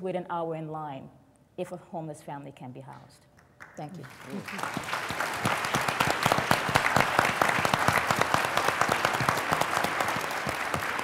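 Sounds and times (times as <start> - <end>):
audience applauding: 3.6 - 11.0.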